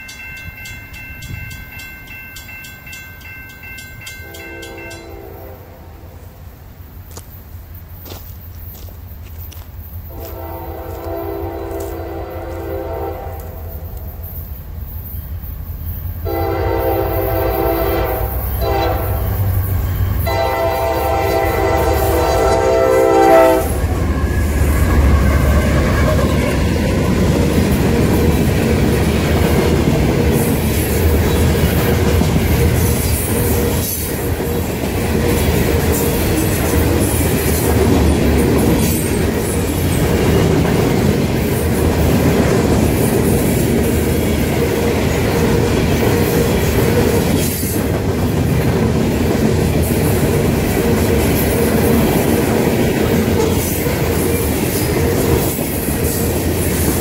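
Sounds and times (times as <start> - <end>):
train horn: 4.2 - 6.3, 10.1 - 14.2, 16.2 - 26.7
locomotive engine rumble: 6.4 - 42.9
train cars rattling over rails: 6.4 - 57.0.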